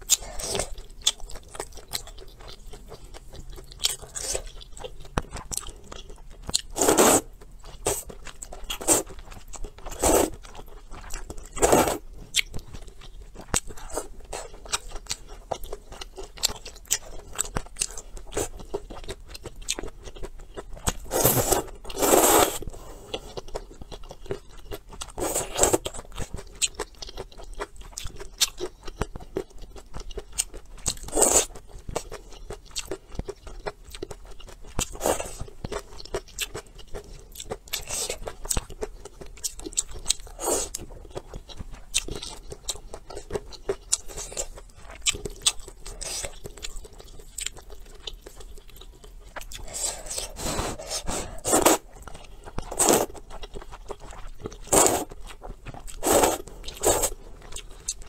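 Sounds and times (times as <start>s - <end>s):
wet chewing: 0.0s - 58.0s
slurping noodles: 6.8s - 7.3s, 8.8s - 9.1s, 9.9s - 10.4s, 11.6s - 12.0s, 21.0s - 23.1s, 25.2s - 25.8s, 49.6s - 51.8s, 52.7s - 53.2s, 54.6s - 55.2s, 55.9s - 57.1s.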